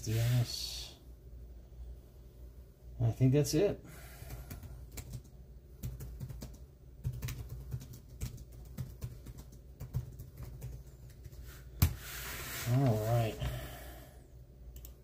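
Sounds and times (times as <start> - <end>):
low steady hum: 0.0 - 15.0
typing on computer keyboard: 4.2 - 11.4.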